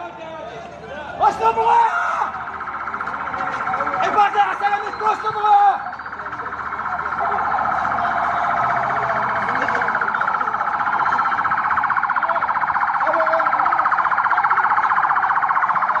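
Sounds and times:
electronic alarm siren warbling: 1.2s - 16.0s.

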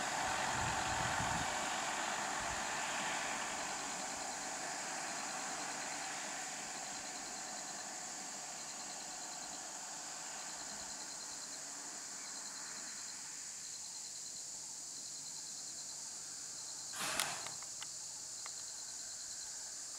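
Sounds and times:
high hiss: 0.0s - 15.0s, 16.2s - 18.5s
insects chirping: 0.0s - 19.9s
sharp noisy burst: 17.0s - 17.6s.

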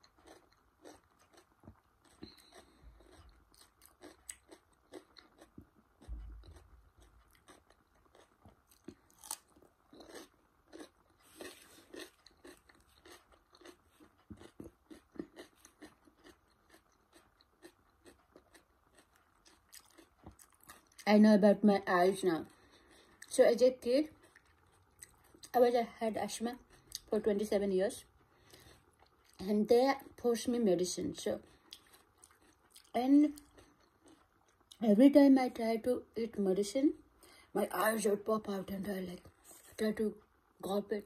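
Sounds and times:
cucumber crunching: 0.0s - 21.0s.

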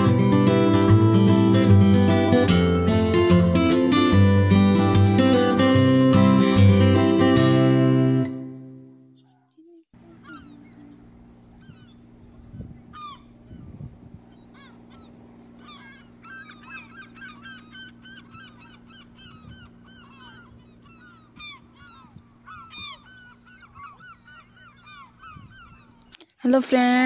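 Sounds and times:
flock of birds chirping: 9.2s - 26.2s.

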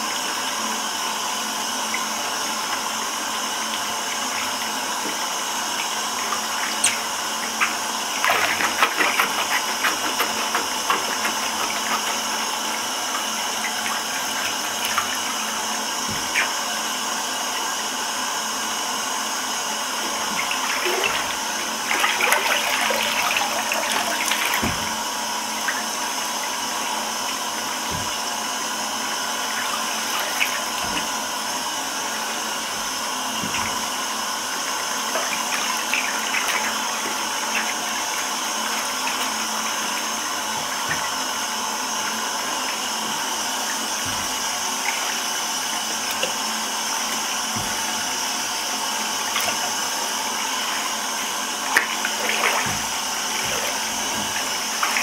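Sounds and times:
water running into bathtub: 0.0s - 55.0s
shoes sloshing in water: 5.9s - 15.4s, 51.7s - 55.0s.

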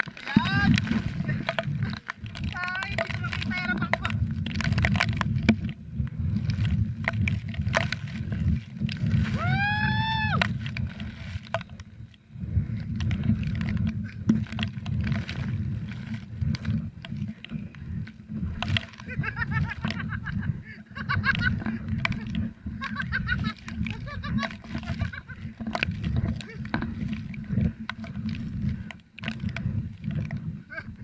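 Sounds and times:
water splashes: 0.0s - 31.0s
wind buffeting microphone: 0.0s - 31.0s
person shouting: 9.4s - 10.4s.

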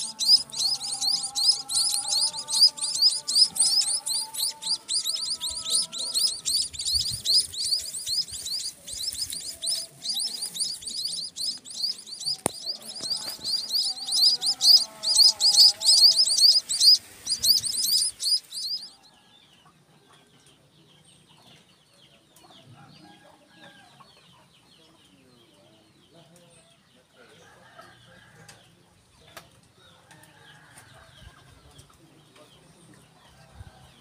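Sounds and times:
lower bird calls: 0.0s - 19.0s
nestlings chirping: 0.0s - 19.0s.

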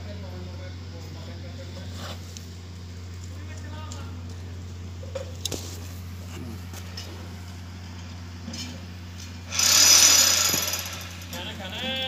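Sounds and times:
steady low hum: 0.0s - 12.0s
loud hissing rush: 9.5s - 11.3s.

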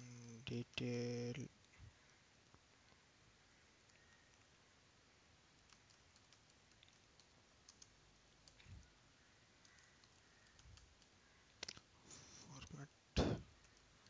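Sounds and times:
computer keyboard keystrokes: 5.6s - 8.9s, 9.6s - 11.8s.

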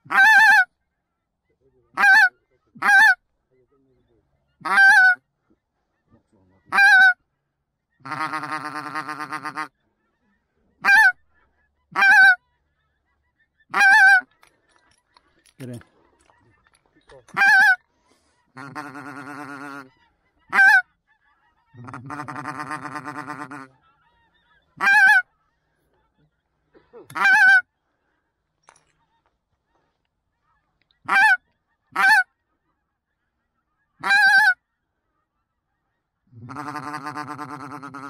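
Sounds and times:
goose call honks: 0.0s - 0.7s, 1.9s - 3.2s, 4.6s - 5.2s, 6.7s - 7.2s, 8.0s - 9.7s, 10.8s - 11.2s, 11.9s - 12.4s, 13.7s - 14.3s, 17.3s - 17.8s, 18.6s - 20.9s, 21.7s - 23.8s, 24.8s - 25.3s, 26.8s - 27.7s, 30.5s - 32.3s, 34.0s - 34.6s, 36.3s - 38.0s.

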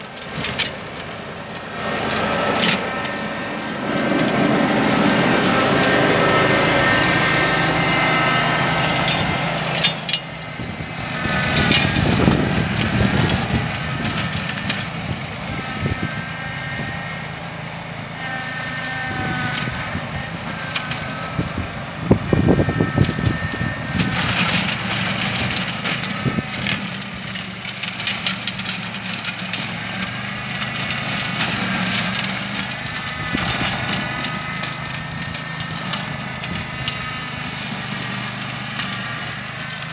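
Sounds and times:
brush cutter engine running: 0.0s - 39.9s
woody stems cracking and snapping: 23.0s - 37.0s.

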